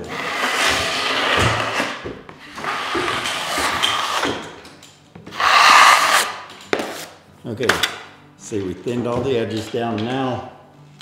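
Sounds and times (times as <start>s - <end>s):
drywall knife scraping compound: 0.0s - 4.4s, 5.3s - 7.2s.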